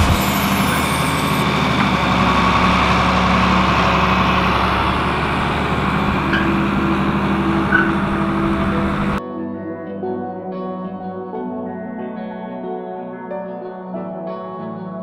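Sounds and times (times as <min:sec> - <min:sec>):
tractor engine running: 0:00.0 - 0:09.2.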